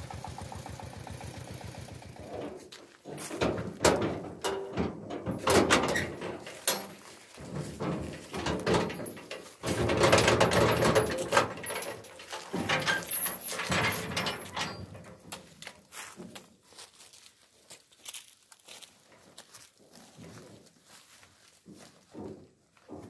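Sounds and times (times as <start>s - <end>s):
wooden boards knocking and scraping: 2.9s - 11.6s.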